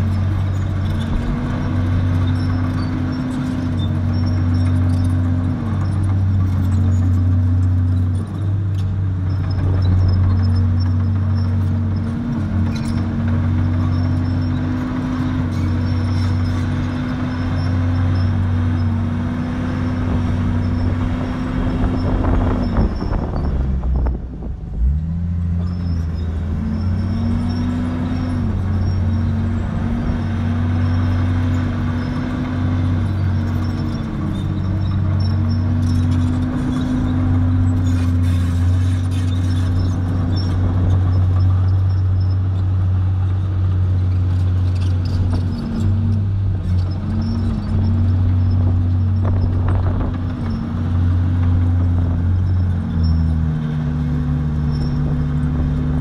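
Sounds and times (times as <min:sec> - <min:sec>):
bulldozer diesel engine under load: 0:00.0 - 0:56.0.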